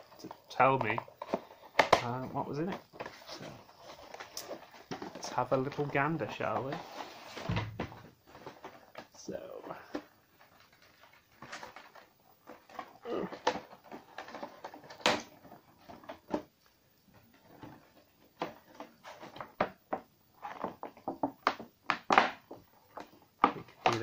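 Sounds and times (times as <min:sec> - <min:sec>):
packaging clicks and scrapes: 0:00.0 - 0:07.6, 0:09.8 - 0:16.4.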